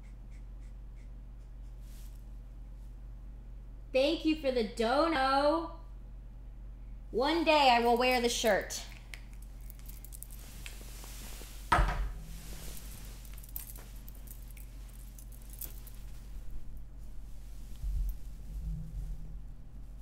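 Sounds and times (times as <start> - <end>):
handling clicks and clinks: 7.8 - 10.9, 12.4 - 16.9.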